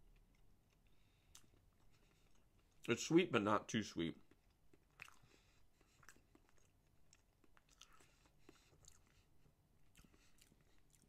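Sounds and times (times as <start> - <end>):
faint chewing: 0.0 - 2.9, 4.2 - 11.0.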